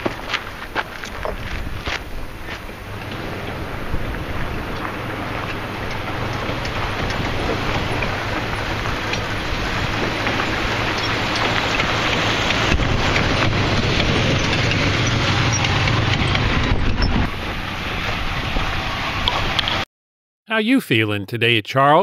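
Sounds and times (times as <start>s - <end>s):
tyres on dirt: 0.0s - 17.4s
van engine rumbling: 0.0s - 19.8s.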